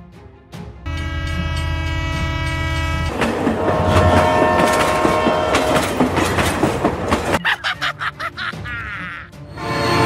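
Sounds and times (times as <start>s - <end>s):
train horn: 0.9s - 6.2s, 9.5s - 10.0s
train wheels clattering on rails: 3.1s - 7.4s.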